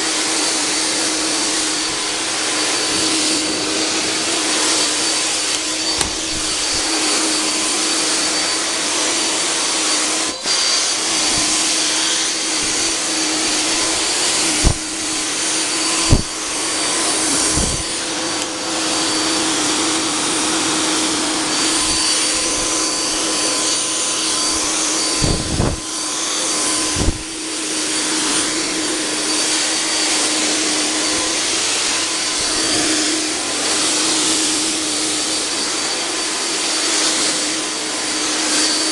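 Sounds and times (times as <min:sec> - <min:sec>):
fog generator blower hissing: 0:00.0 - 0:38.9.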